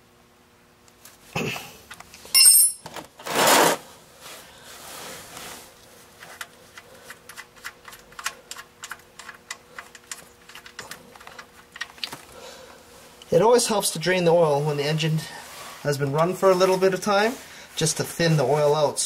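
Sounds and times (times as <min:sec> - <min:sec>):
wrench clinking on metal: 0:02.3 - 0:02.9
loud scraping rustle: 0:03.2 - 0:05.8.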